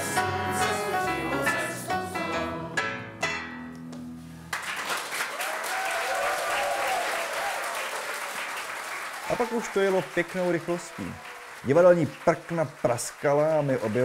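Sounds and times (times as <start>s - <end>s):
keyboard and double bass: 0.0s - 4.5s
audience applause: 4.5s - 14.0s.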